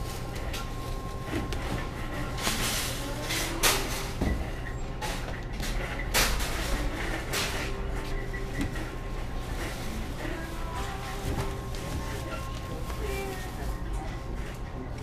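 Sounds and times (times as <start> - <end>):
plastic bags rustling: 0.0 - 3.3, 6.5 - 14.3.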